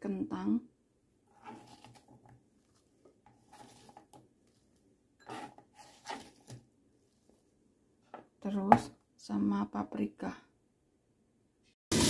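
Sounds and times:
vegetables rustling in a bowl: 1.3s - 6.6s.

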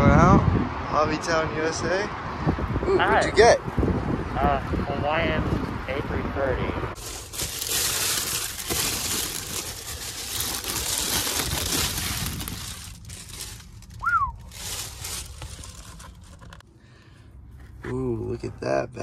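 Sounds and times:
plastic bag crinkling: 7.0s - 16.6s.

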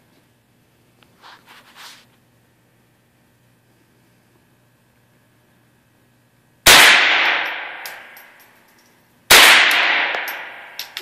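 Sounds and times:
rifle shots echoing: 6.7s - 8.1s, 9.3s - 11.0s.

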